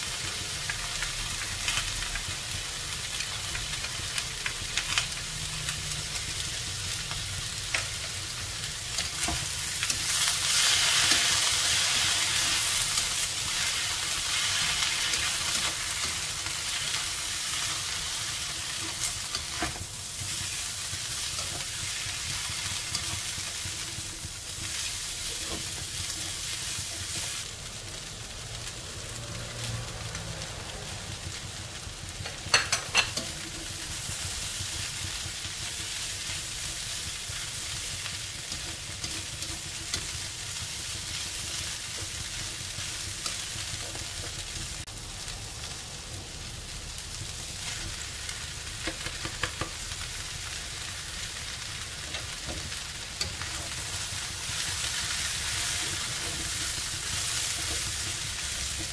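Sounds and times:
food sizzling in a wok: 0:00.0 - 0:58.9
spatula stirring and scraping: 0:52.1 - 0:58.9.

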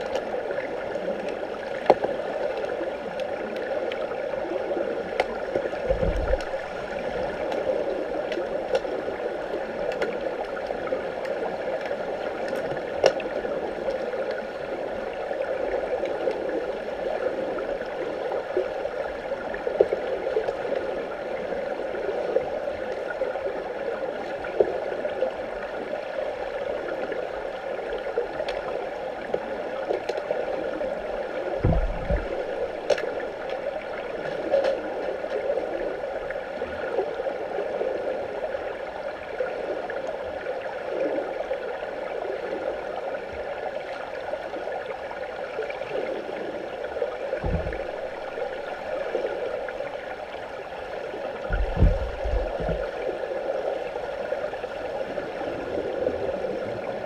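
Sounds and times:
muffled underwater water wash: 0:00.0 - 0:57.0
low thump: 0:05.9 - 0:06.5, 0:31.6 - 0:32.5, 0:47.4 - 0:47.9, 0:51.5 - 0:52.8.

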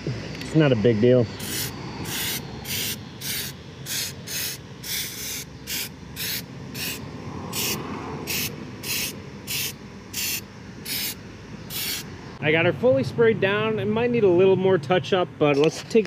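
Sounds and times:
aerosol can spraying: 0:01.4 - 0:12.1.

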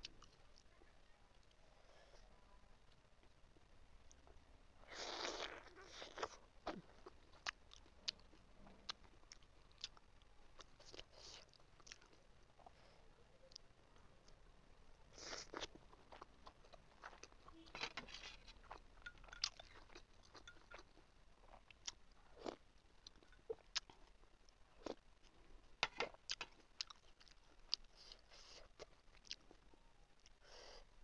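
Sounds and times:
chewing and lip-smacking: 0:05.1 - 0:12.8, 0:15.2 - 0:25.4, 0:26.3 - 0:30.4.

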